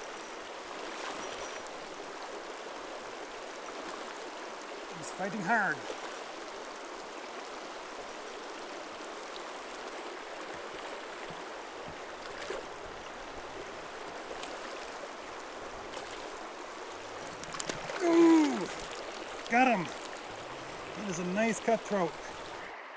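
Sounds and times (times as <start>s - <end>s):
river rushing over gravel: 0.0s - 22.9s
faint clicks: 17.2s - 18.0s.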